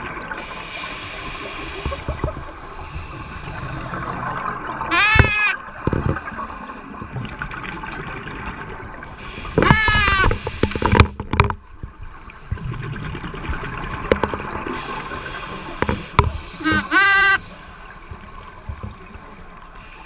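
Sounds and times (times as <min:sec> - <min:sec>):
regulator bubbles gurgling: 0:00.0 - 0:20.0
underwater horn honk: 0:04.8 - 0:05.6, 0:09.6 - 0:10.4, 0:16.6 - 0:17.6.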